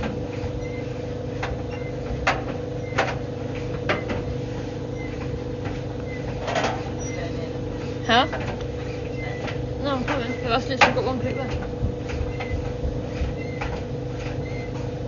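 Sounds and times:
tumble dryer motor hum: 0:00.0 - 0:15.0
clothes knocking in drum: 0:09.5 - 0:14.9.

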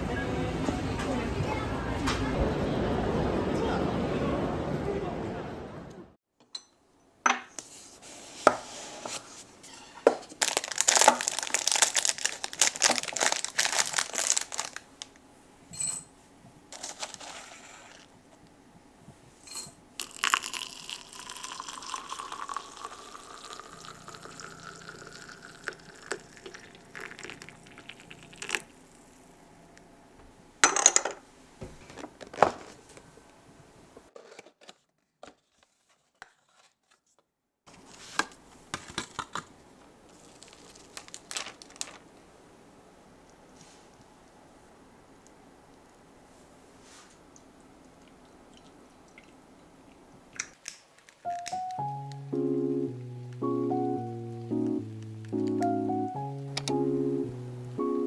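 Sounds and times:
loose tea rattling into teapot: 0:20.0 - 0:28.6
water pouring into teapot: 0:20.0 - 0:28.8.

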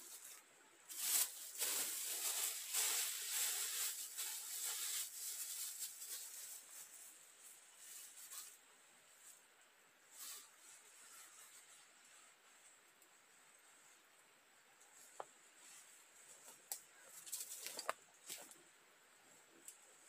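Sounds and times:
plastic bag rustling: 0:00.0 - 0:08.6, 0:15.1 - 0:18.6.

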